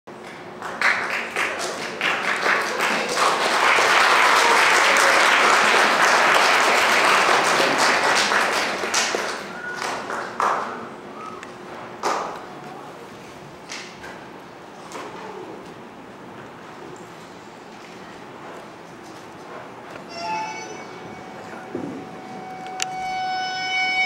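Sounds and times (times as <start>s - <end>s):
audience applauding: 0.2s - 11.1s.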